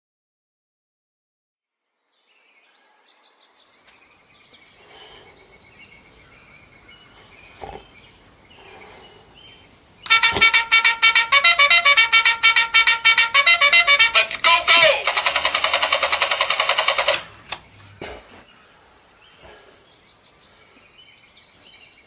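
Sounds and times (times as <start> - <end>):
small birds chirping: 1.6 - 11.0, 12.0 - 15.4, 16.1 - 22.0
phone alarm electronic notes: 10.1 - 17.2.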